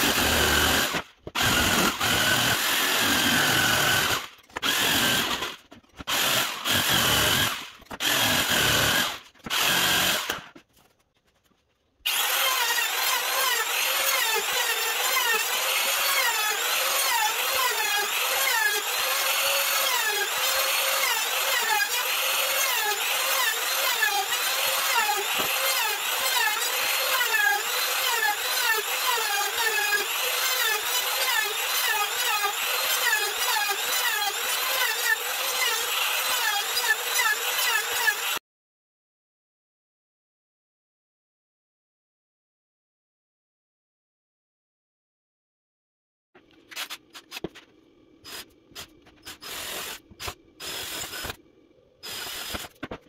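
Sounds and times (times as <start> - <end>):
router running: 0.0 - 10.5, 12.1 - 38.4, 52.0 - 52.8
jigsaw cutting: 0.0 - 10.6, 12.1 - 38.4, 48.2 - 51.4, 52.0 - 53.0.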